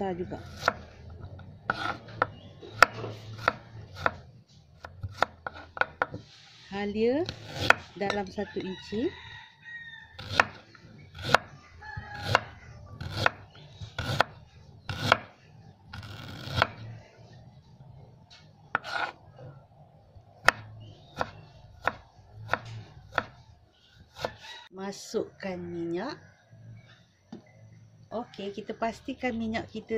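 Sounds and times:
knife slicing on wooden board: 0:18.7 - 0:19.2.

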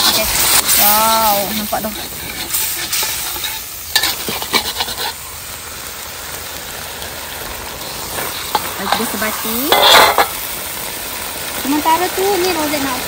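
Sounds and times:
metal spatula scraping wok: 0:00.0 - 0:05.2, 0:07.8 - 0:10.6
sauce sizzling in a wok: 0:00.0 - 0:13.0.

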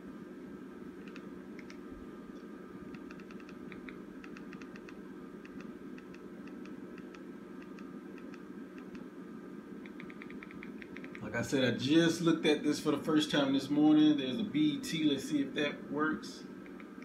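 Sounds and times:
steady low hum: 0:00.0 - 0:17.0
remote control buttons clicking: 0:02.4 - 0:09.1, 0:09.8 - 0:11.2, 0:16.6 - 0:17.0.

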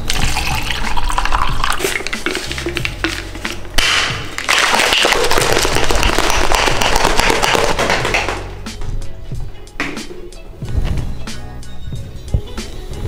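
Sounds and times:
shaker cup clattering and sloshing: 0:00.0 - 0:08.5.

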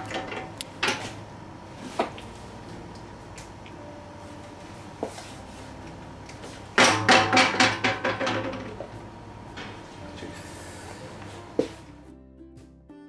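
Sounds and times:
machine nailing metallic strikes: 0:06.8 - 0:08.8.

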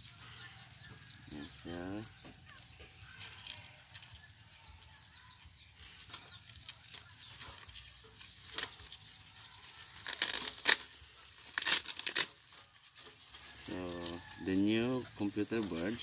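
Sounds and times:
circuit board crackling and tearing: 0:08.3 - 0:12.7.

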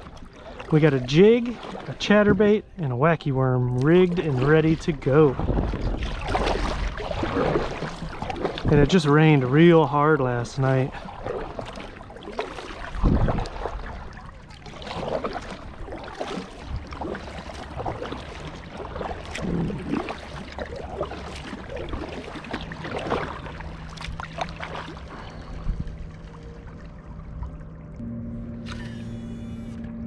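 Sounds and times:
paddle splashing into water: 0:00.0 - 0:02.6, 0:03.7 - 0:09.6, 0:10.6 - 0:25.9.

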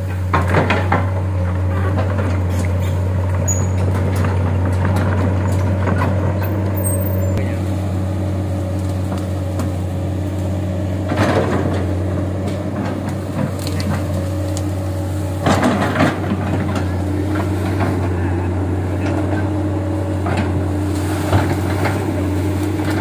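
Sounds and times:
excavator diesel engine running: 0:00.0 - 0:23.0
branches cracking and snapping: 0:08.6 - 0:18.0.

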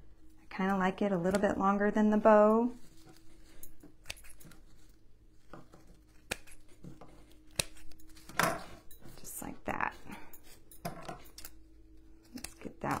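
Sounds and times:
scissors snipping: 0:03.8 - 0:04.6, 0:05.8 - 0:08.4, 0:12.2 - 0:13.0.

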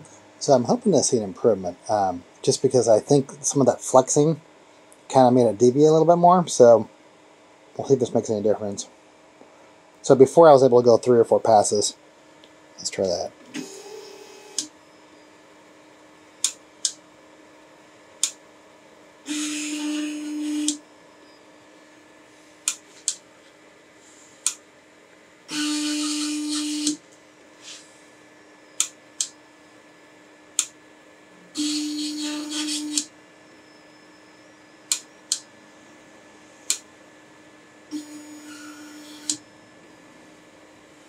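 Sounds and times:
stepper motors whining: 0:25.5 - 0:27.0.

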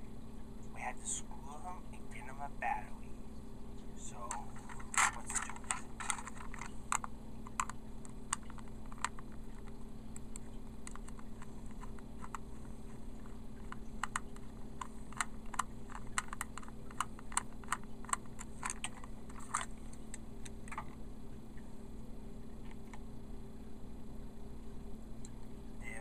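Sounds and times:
low steady hum: 0:00.0 - 0:26.0
screwdriver clicking on plastic: 0:04.3 - 0:20.9.

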